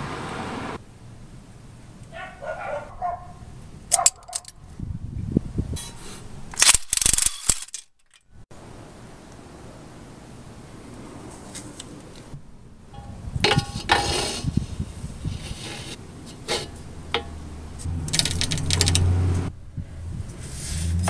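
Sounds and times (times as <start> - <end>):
dog barking: 2.1 - 4.5
socket clinking against bolts: 3.9 - 4.6.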